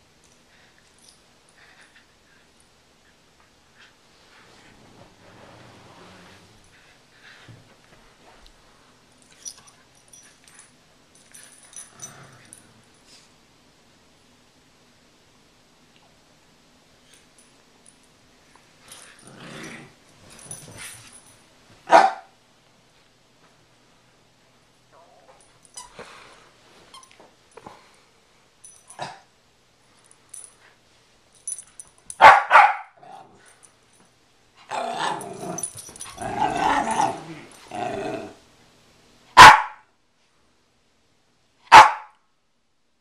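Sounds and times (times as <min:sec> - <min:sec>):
dog growling: 0:19.2 - 0:20.0, 0:34.7 - 0:38.4
dog barking: 0:21.9 - 0:22.3, 0:32.2 - 0:33.0, 0:39.4 - 0:39.8, 0:41.7 - 0:42.2.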